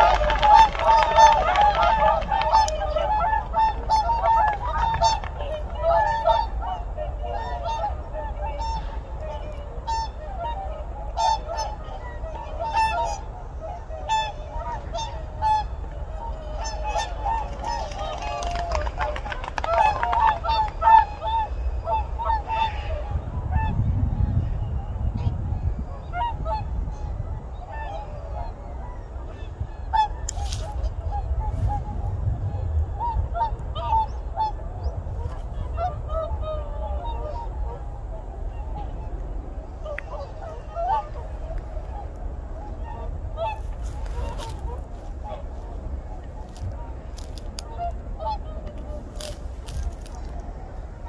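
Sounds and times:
low rumble: 0.0 - 51.0
swans honking in flight: 0.0 - 51.0.

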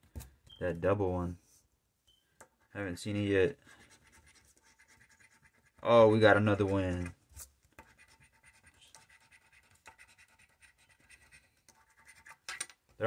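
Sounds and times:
scratching lottery ticket: 3.7 - 7.2, 7.8 - 12.5.

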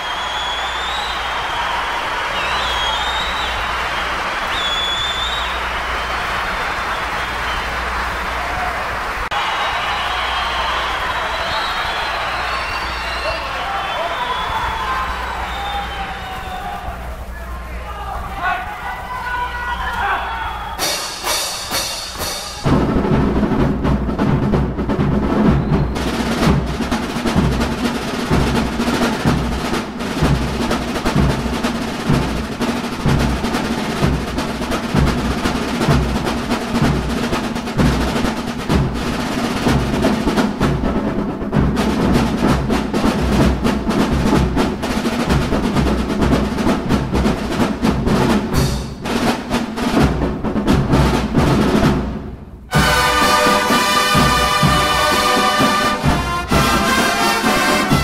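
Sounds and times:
fast snare drum rolls: 0.0 - 58.0
heavy drum beats: 0.0 - 58.0.

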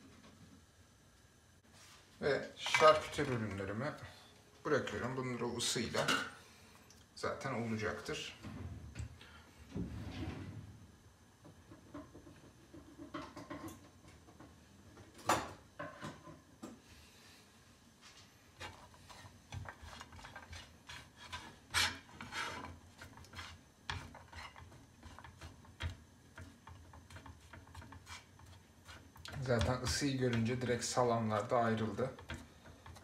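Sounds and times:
spatula scraping and knocking on pan: 11.5 - 14.5, 18.6 - 33.0.

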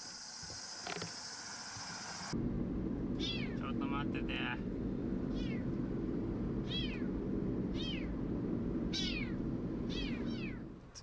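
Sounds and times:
moving vehicle rumble: 2.2 - 11.0
kitten meowing: 3.2 - 3.6, 5.3 - 5.6, 6.7 - 7.1, 8.9 - 10.6.

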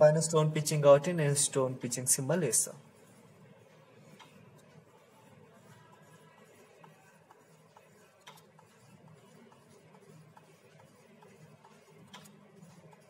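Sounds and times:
faint regular ticking: 4.1 - 4.7.

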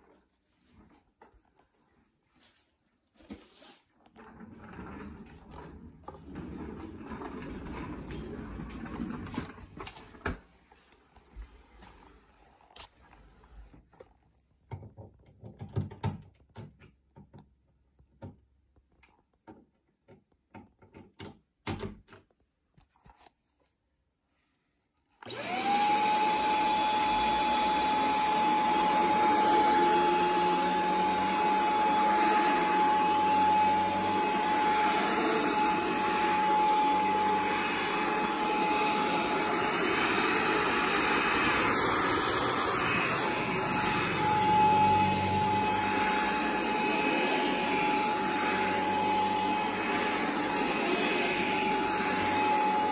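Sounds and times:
stick vacuum whining: 4.1 - 10.4, 25.2 - 52.9.

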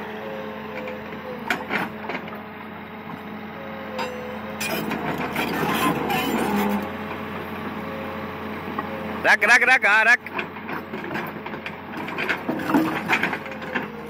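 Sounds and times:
diesel engine running: 0.0 - 14.0
hydraulic breaker knocking: 4.0 - 6.9.

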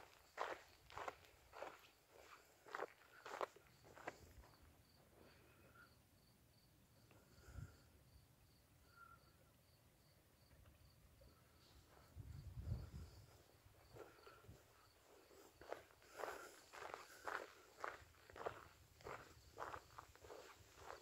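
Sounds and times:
cricket chirping: 0.0 - 21.0.

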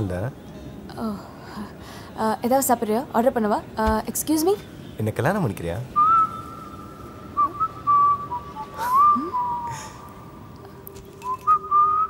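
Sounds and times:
person whistling: 6.0 - 10.1, 11.2 - 12.0.

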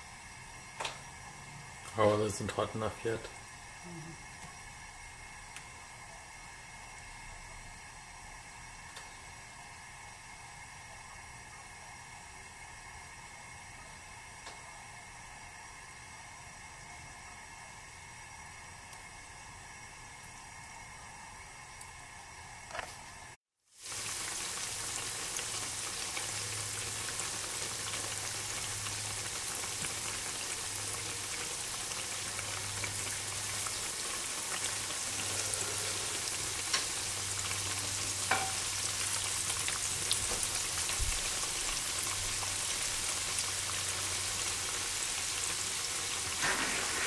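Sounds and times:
frying oil sizzling: 0.0 - 47.0.

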